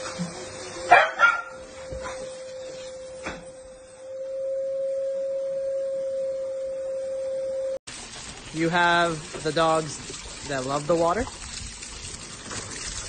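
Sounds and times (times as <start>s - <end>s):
steady high hum: 0.0s - 7.8s
dog barking: 0.9s - 2.3s.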